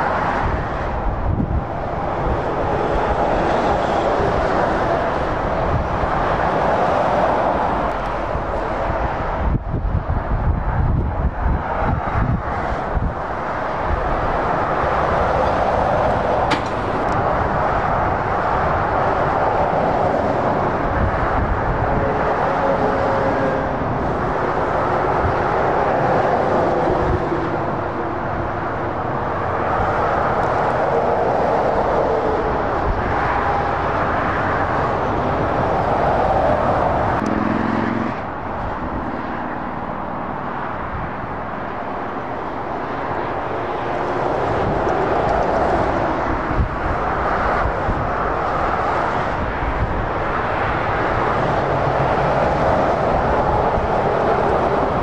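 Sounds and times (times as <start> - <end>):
motorway traffic passing: 0.0 - 55.0.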